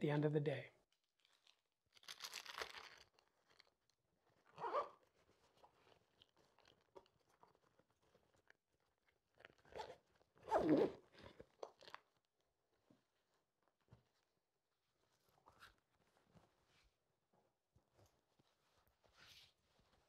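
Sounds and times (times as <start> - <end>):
zipper being zipped: 4.6 - 5.0, 9.8 - 11.1.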